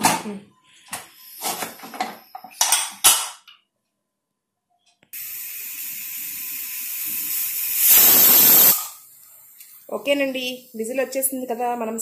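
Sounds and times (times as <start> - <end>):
steam hissing from vent: 5.2 - 11.1.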